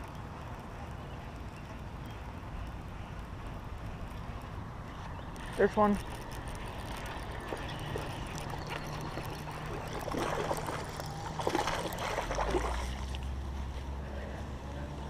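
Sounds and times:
fish splashing at water surface: 6.2s - 13.4s.

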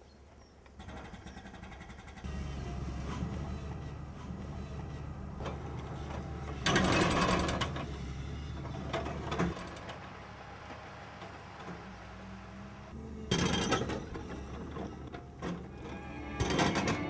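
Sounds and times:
low engine hum: 2.2s - 16.3s.

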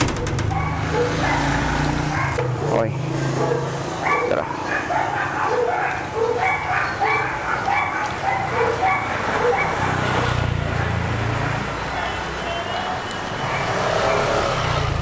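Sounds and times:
motorcycle engine rumbling past: 0.0s - 4.0s, 13.3s - 15.0s
dog barking: 0.5s - 2.7s, 3.3s - 10.2s, 11.9s - 14.5s.

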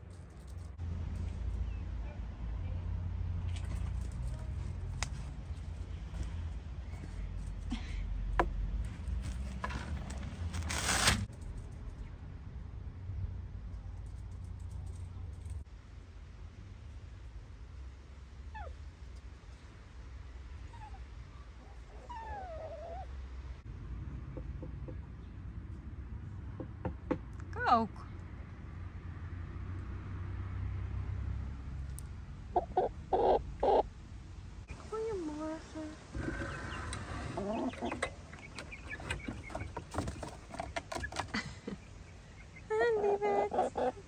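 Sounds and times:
dog whining: 21.7s - 23.1s
hens clucking: 32.5s - 33.9s, 36.0s - 44.0s.

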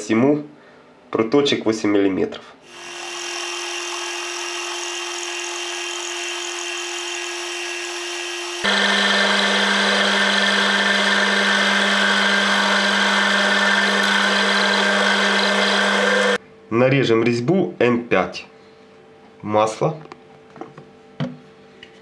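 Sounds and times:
lathe motor hum: 2.7s - 16.4s.

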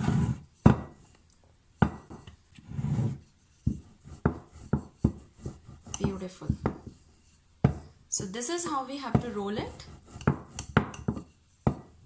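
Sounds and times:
wooden board scraping on counter: 0.0s - 0.8s, 2.0s - 7.8s, 9.1s - 12.0s
rolling pin rumbling on dough: 1.8s - 8.0s, 9.0s - 12.0s.

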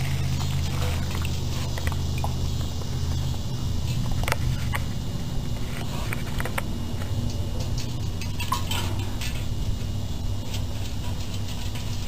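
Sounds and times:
steady low hum: 0.0s - 12.0s
paws tapping metal tub: 7.2s - 12.0s.

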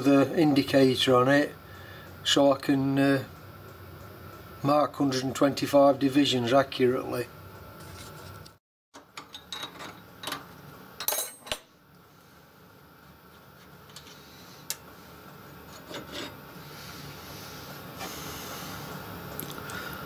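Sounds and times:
metal tools clinking on steel: 11.0s - 11.6s
metal scraping and rubbing: 15.6s - 16.4s.

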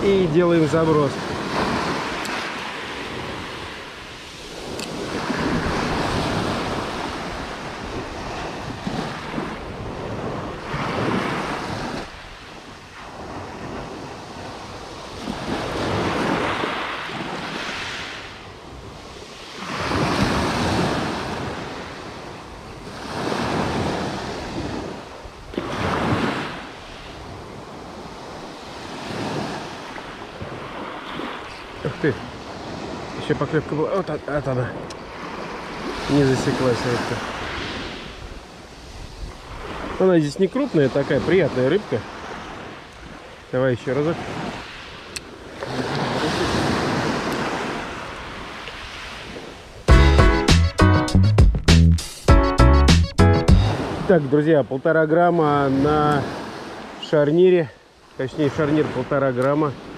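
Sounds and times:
wind buffeting microphone: 0.0s - 12.2s
sea waves washing onto shore: 0.0s - 49.9s, 53.7s - 59.9s.

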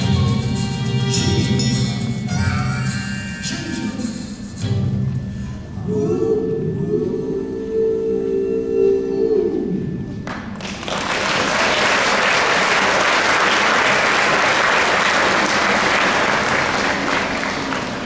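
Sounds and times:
audience applause: 10.6s - 18.0s.

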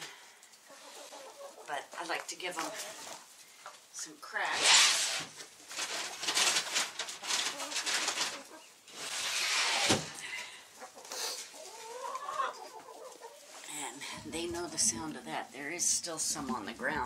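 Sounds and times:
hens clucking: 0.0s - 3.7s, 7.3s - 8.9s, 10.2s - 17.0s.

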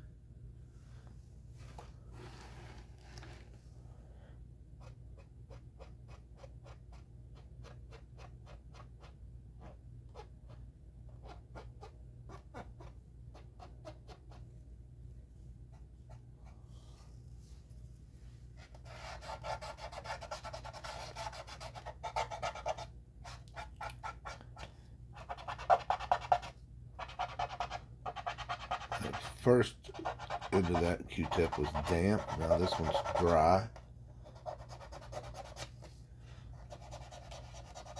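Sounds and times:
cotton swab rubbing on plastic: 27.1s - 33.8s.

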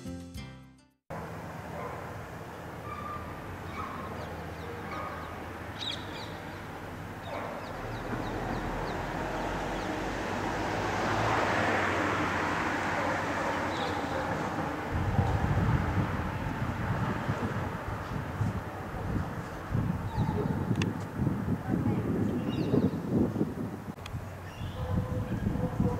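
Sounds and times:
birds chirping: 1.7s - 11.4s, 13.0s - 14.6s, 20.0s - 20.6s, 22.0s - 23.2s, 24.2s - 25.8s.

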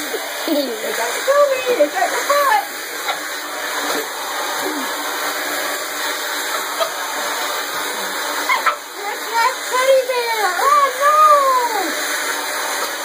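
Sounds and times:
hair dryer blowing: 0.0s - 13.0s
small dog yelping and growling: 8.4s - 8.8s.

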